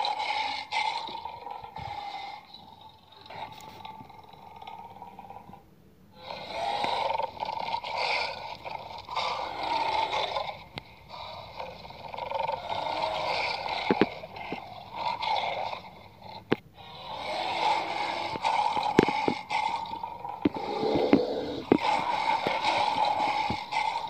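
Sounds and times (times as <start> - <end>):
toy figures scraping on artificial grass: 16.8 - 24.0.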